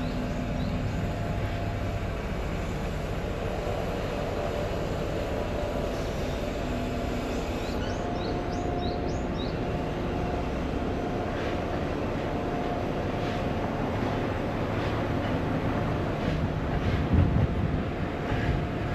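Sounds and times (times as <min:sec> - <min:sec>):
urban traffic rumble: 0:00.0 - 0:18.9.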